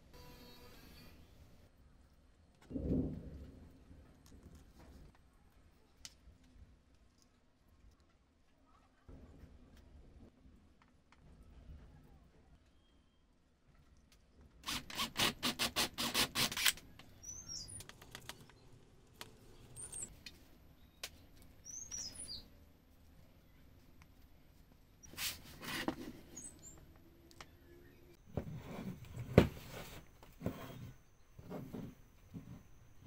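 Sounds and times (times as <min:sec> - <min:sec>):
faint birds chirping: 0:11.2 - 0:14.6, 0:16.9 - 0:25.2, 0:26.1 - 0:28.4.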